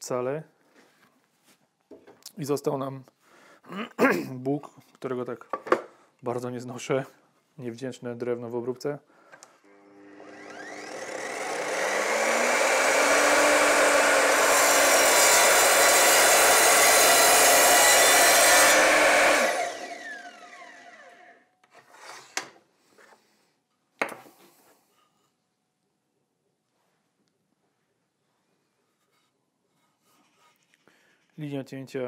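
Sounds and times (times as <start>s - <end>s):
mitre saw cutting wood: 9.7s - 21.4s
saw motor winding down: 9.7s - 21.4s.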